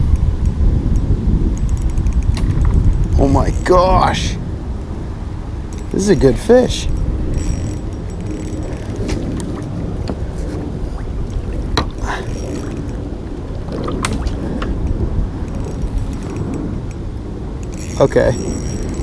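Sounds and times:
low rumble: 6.9 - 17.8
knocks and clicks from kayak hull: 8.8 - 12.9.

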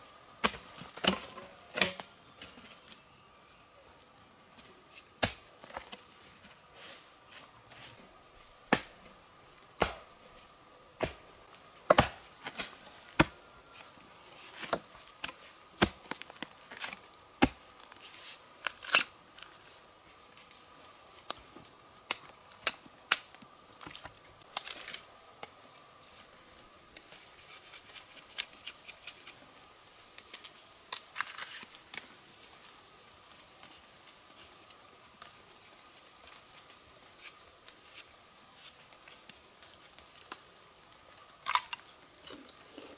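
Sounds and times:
faint steady high tone: 1.2 - 4.4.

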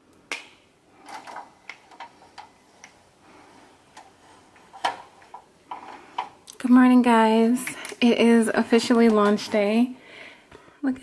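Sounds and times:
window blinds clicking and rattling: 1.0 - 8.2.

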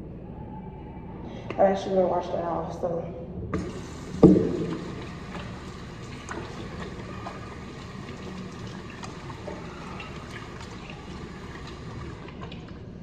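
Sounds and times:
hands rinsing under water: 3.6 - 12.8
water running from a tap: 3.6 - 12.8
small clicks and drips: 5.2 - 13.0.

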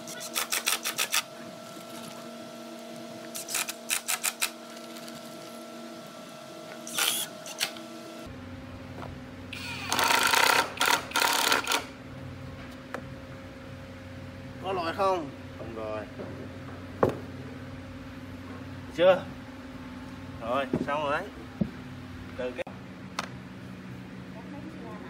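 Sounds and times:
steady background hum: 0.0 - 25.0
cordless drill driving screws: 6.8 - 7.8, 9.6 - 11.9.

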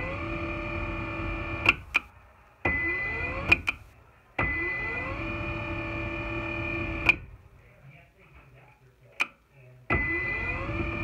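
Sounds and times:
stairlift motor whining: 0.0 - 2.0, 2.6 - 7.4, 9.9 - 11.0.

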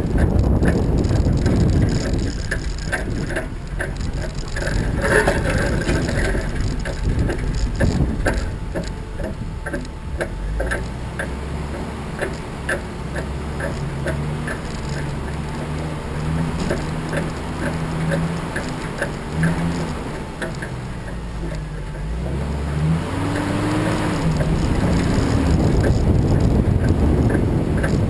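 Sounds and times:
steady low rumble: 0.0 - 28.0
light mechanical clicking: 0.1 - 22.1.

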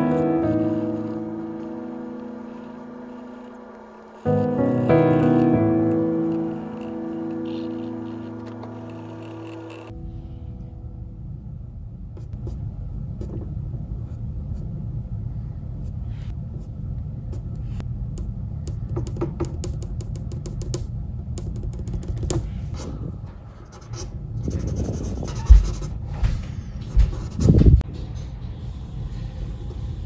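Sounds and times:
pencil scratching on paper: 0.0 - 9.9, 23.7 - 25.9
steady low rumble: 9.9 - 19.0.

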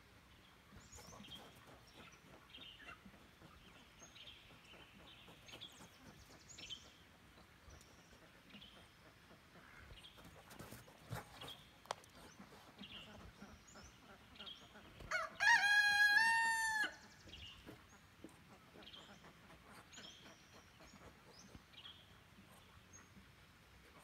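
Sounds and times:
rooster crowing: 15.1 - 17.0.

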